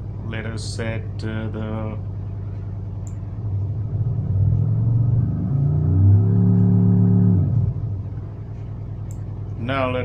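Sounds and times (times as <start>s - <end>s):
faint hum: 0.0s - 10.0s.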